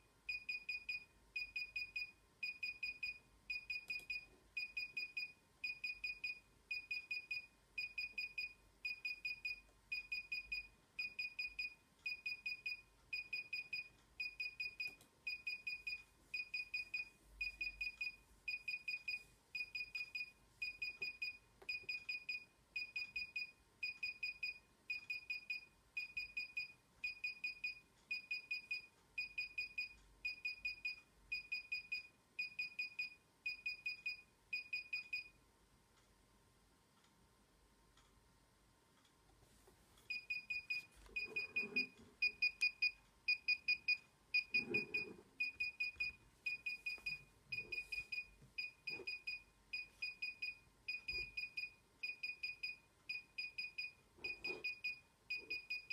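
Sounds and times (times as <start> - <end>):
remote controller high beeps: 40.1 - 55.9.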